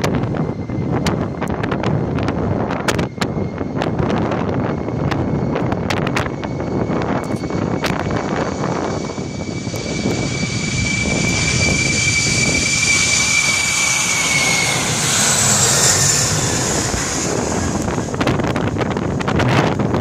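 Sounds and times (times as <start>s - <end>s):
jet blast buffeting microphone: 0.0s - 20.0s
jet engine roar with fan whine: 0.0s - 20.0s
hissing jet roar: 6.7s - 19.9s.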